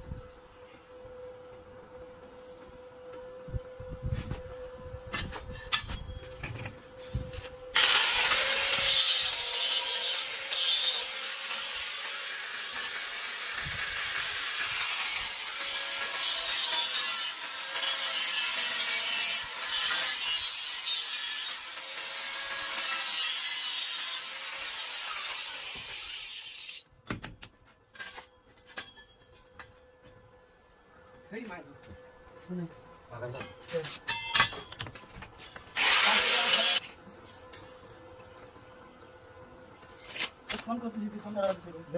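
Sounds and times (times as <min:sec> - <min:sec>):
angle grinder cutting steel: 0:07.7 - 0:26.8, 0:35.7 - 0:36.9.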